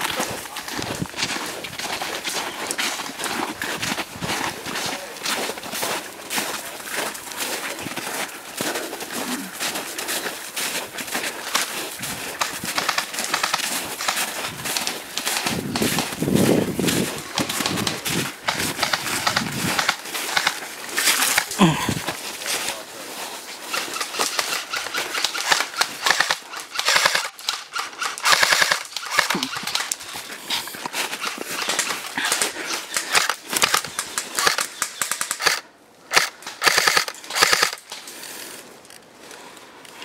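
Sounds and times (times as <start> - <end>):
airsoft rifle full-auto bursts: 12.4 - 16.0, 23.7 - 29.9, 33.0 - 37.8.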